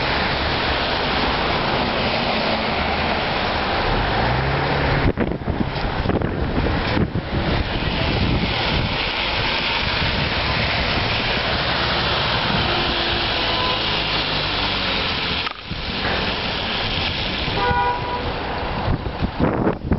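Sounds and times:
rain: 0:00.0 - 0:19.9
street traffic: 0:00.0 - 0:19.9
short horn-like tone: 0:13.4 - 0:14.0, 0:17.6 - 0:18.3.

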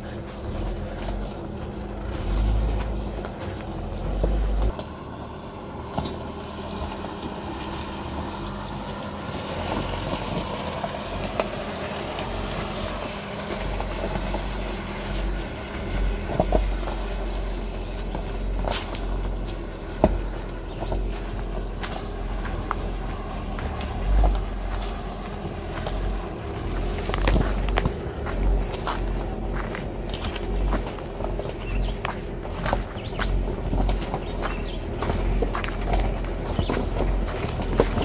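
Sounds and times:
engine running low: 0:00.0 - 0:38.0
tyres crunching over stones: 0:00.0 - 0:38.0
rocks cracking underneath: 0:09.8 - 0:38.0.

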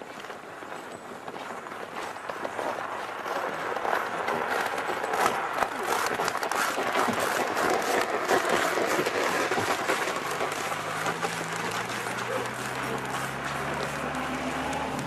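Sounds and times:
low engine hum: 0:09.1 - 0:15.0.

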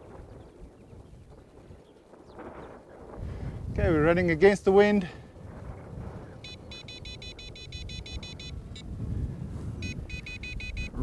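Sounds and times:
low wind rumble: 0:00.0 - 0:11.0
transmitter alarm high beeps: 0:06.4 - 0:08.8, 0:09.8 - 0:11.0.

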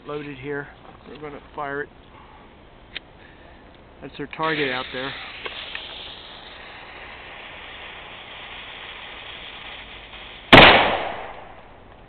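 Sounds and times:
cannon firing bang: 0:10.5 - 0:11.8.

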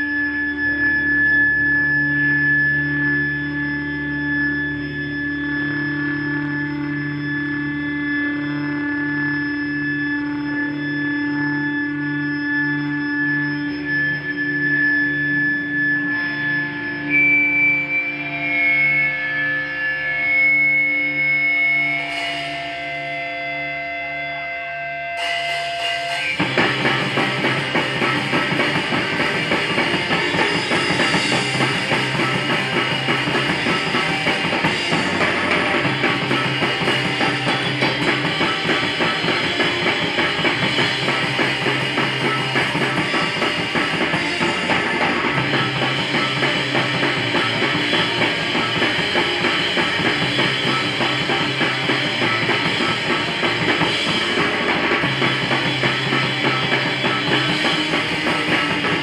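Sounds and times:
bass guitar: 0:00.0 - 0:59.0
electric guitar: 0:00.0 - 0:59.0
drum kit: 0:20.4 - 0:23.4, 0:25.2 - 0:59.0.

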